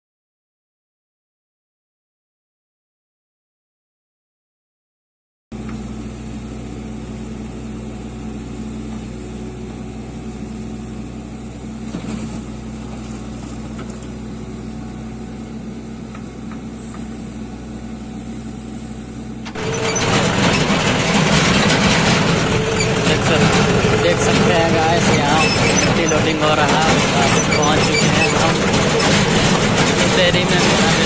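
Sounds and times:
diesel engine running: 0:05.6 - 0:31.0.

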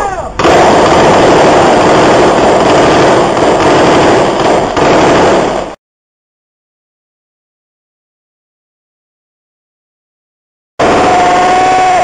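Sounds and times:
dense gunfire: 0:00.4 - 0:05.8, 0:10.8 - 0:12.0.

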